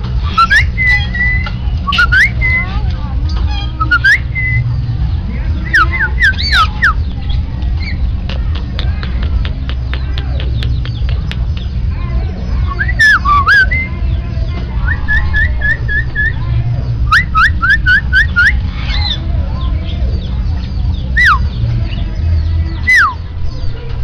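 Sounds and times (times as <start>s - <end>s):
low background rumble: 0.0s - 24.0s
bird whistling: 0.2s - 2.8s, 3.5s - 4.8s, 5.7s - 7.1s, 12.6s - 14.0s, 14.8s - 16.4s, 17.0s - 19.2s, 21.2s - 21.6s, 22.8s - 23.2s
bird sharp ticks: 7.6s - 11.9s.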